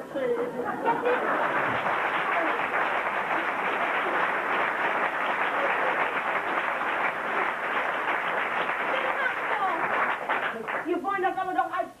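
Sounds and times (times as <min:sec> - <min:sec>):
audience laughing: 0:00.4 - 0:06.6
audience applauding: 0:00.8 - 0:11.0.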